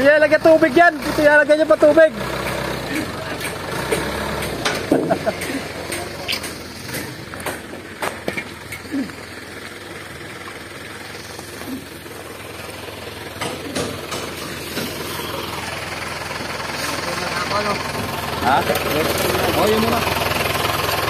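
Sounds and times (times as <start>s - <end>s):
truck engine idling: 0.0s - 21.0s
sharp knocks and clicks: 2.4s - 8.8s, 13.4s - 15.0s.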